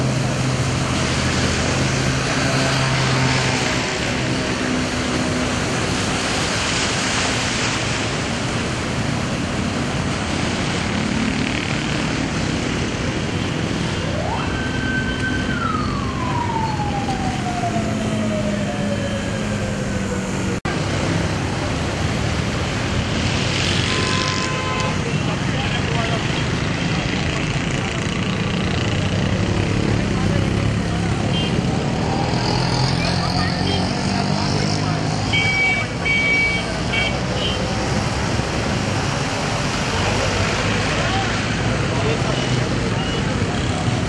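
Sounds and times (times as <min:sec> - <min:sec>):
traffic through flooded street: 0:00.0 - 0:44.0
siren wail: 0:14.0 - 0:20.6.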